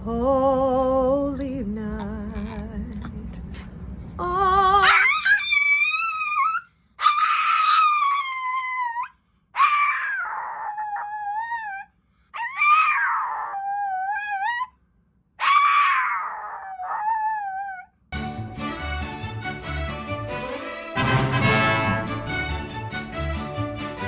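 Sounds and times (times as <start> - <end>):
small dog howling: 4.8 - 14.7, 15.4 - 17.9.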